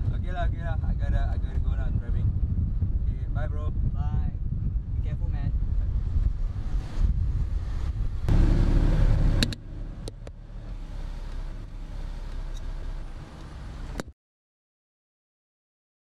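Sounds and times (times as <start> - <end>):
car engine rumble inside cabin: 5.6 - 14.1
sharp clicks: 9.4 - 10.4.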